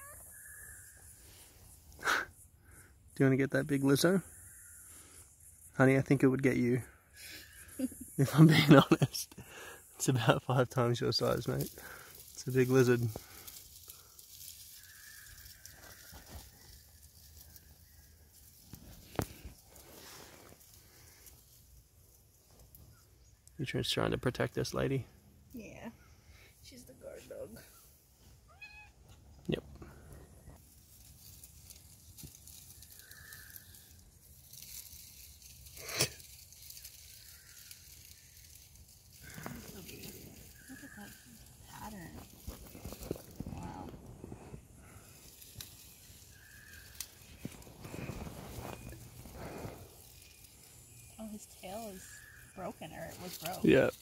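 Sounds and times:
faint rustling: 10.8s - 23.6s, 25.9s - 54.0s.

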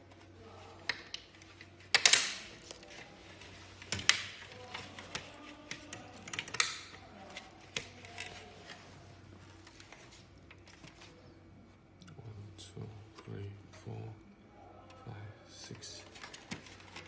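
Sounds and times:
plastic clicks and snaps: 3.8s - 8.3s.

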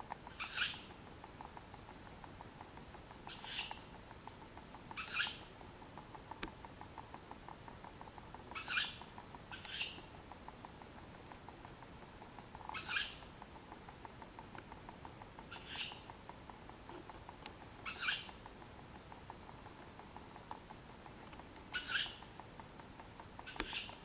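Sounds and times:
faint fast ticking: 0.0s - 24.0s
squeaky rasping animal calls: 0.3s - 0.8s, 3.3s - 3.8s, 5.0s - 5.4s, 8.6s - 10.0s, 12.8s - 13.2s, 15.5s - 16.0s, 17.8s - 18.3s, 21.7s - 22.2s, 23.5s - 24.0s.

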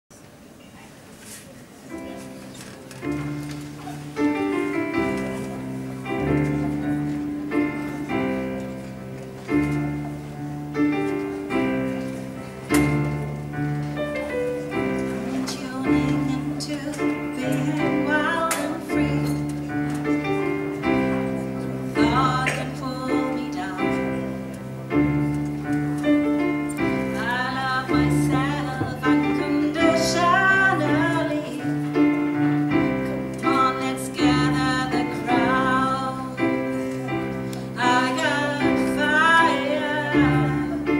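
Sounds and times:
piano chords: 1.9s - 40.9s
woman singing: 15.4s - 19.5s, 21.9s - 24.3s, 27.0s - 31.8s, 33.4s - 40.9s.

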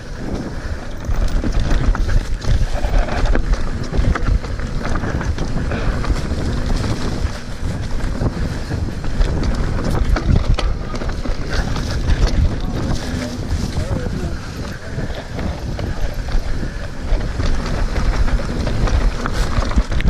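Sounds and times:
bike rattling and knocking: 0.0s - 20.0s
bike tyre rumble: 0.0s - 20.0s
wind buffeting microphone: 0.0s - 20.0s.

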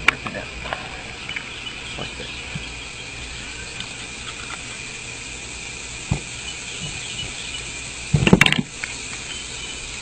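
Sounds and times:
insects chirring: 0.0s - 10.0s.

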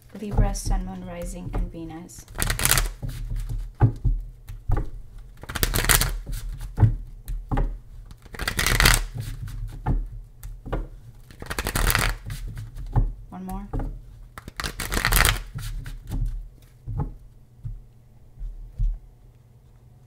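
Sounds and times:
cards shuffling: 2.3s - 6.8s, 8.0s - 12.9s, 14.2s - 16.8s
cards tapping and clicking: 2.3s - 17.2s.

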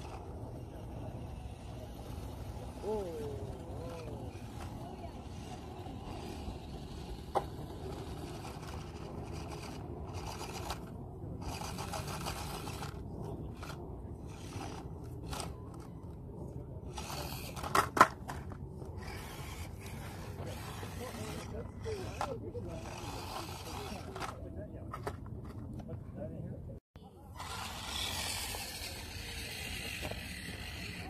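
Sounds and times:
electric motor and gears whirring: 0.0s - 25.7s, 27.2s - 31.0s
tyres scraping on rock: 27.4s - 31.0s.

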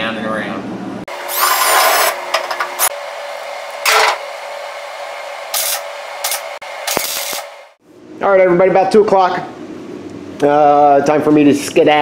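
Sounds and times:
drill boring through steel: 1.1s - 2.2s
welding crackling: 5.4s - 7.8s.

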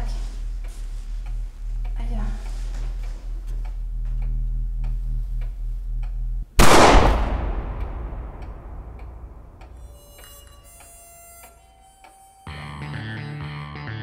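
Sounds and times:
clock ticking: 0.0s - 6.5s, 7.3s - 9.7s
loud gunshot: 6.6s - 9.6s.

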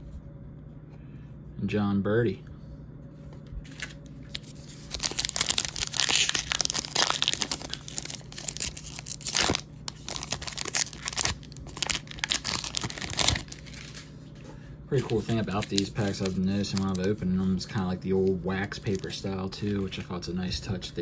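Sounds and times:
wrapper tearing and crinkling: 3.7s - 14.1s, 15.0s - 17.2s, 18.7s - 19.8s.

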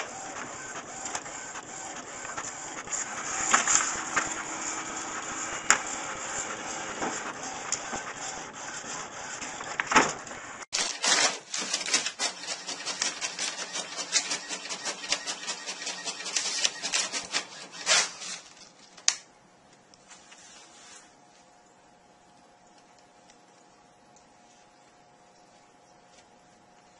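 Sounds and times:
inkjet printer clicking: 0.0s - 10.2s, 10.8s - 18.0s
office printer running: 0.0s - 18.6s
paper rubbing: 1.9s - 9.7s.

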